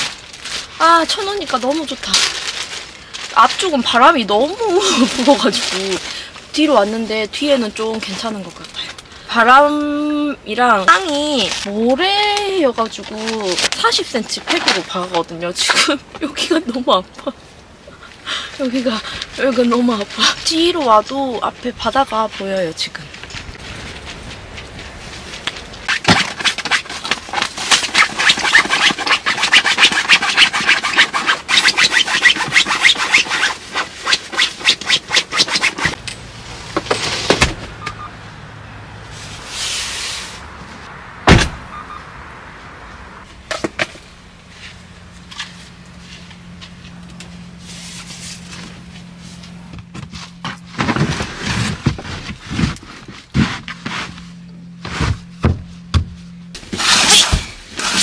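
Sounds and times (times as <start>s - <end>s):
rustling: 0.0s - 10.2s, 10.8s - 16.6s, 17.4s - 37.4s, 44.4s - 58.0s
tent zipper scratching: 25.8s - 36.0s, 50.1s - 55.2s, 56.6s - 58.0s
low steady hum: 40.2s - 58.0s.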